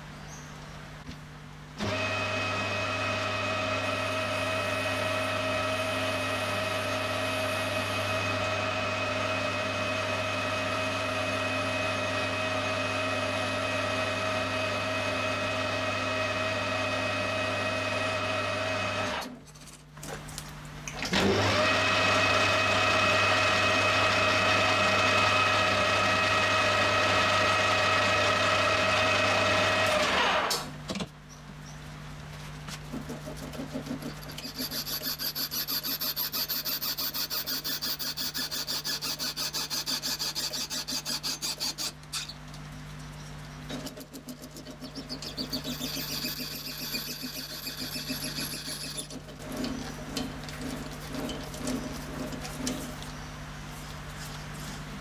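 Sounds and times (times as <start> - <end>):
metal lathe motor hum: 34.2 - 42.0, 44.9 - 49.2.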